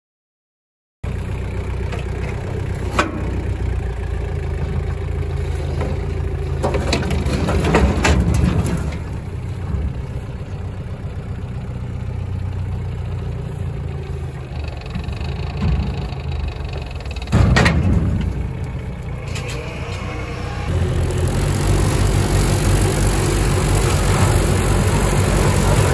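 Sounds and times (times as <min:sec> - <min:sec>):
tractor diesel engine running: 0:01.0 - 0:25.9
short knocks and rattles: 0:04.6 - 0:10.2, 0:14.8 - 0:19.0.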